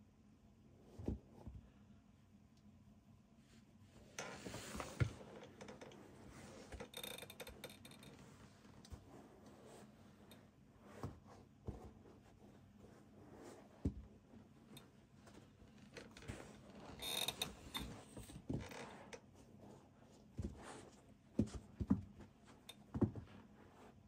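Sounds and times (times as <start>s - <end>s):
shoes thumping on carpet: 21.4s - 22.3s, 22.9s - 23.3s.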